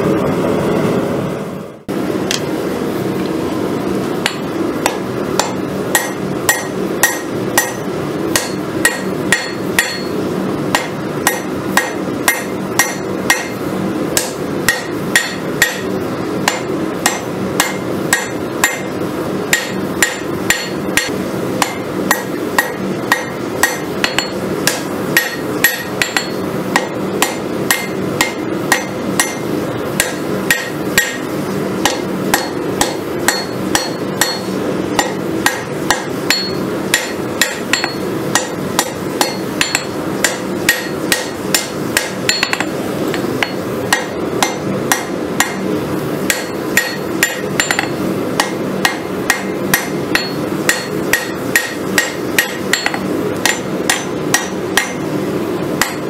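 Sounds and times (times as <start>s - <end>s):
hammer striking hot steel on anvil: 4.2s - 55.2s, 55.8s - 56.0s.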